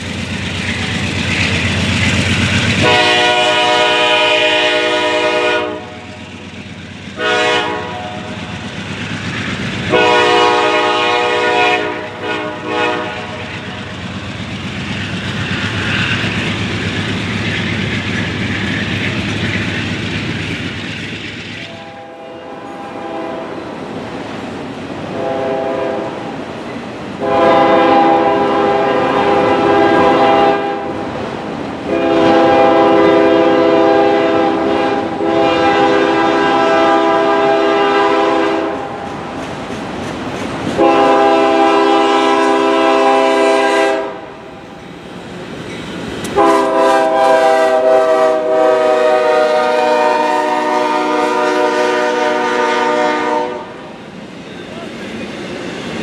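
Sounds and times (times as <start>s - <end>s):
freight train rumbling and clattering: 0.0s - 56.0s
locomotive air horn blasts: 2.8s - 6.1s, 7.2s - 8.4s, 9.9s - 13.6s, 21.7s - 23.6s, 25.1s - 26.3s, 27.2s - 31.0s, 31.9s - 38.9s, 40.8s - 44.3s, 46.4s - 53.8s.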